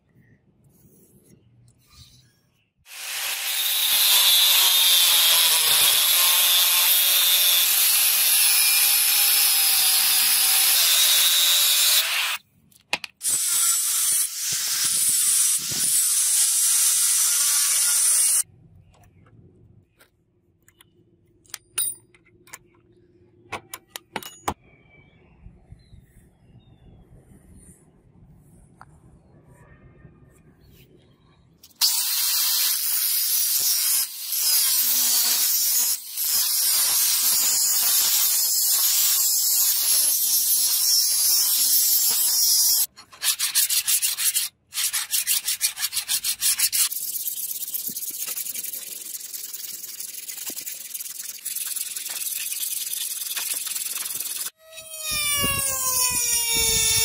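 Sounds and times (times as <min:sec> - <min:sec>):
electric grinder cutting steel: 0:02.9 - 0:12.4, 0:13.2 - 0:18.4, 0:31.8 - 0:42.9, 0:52.0 - 0:57.0.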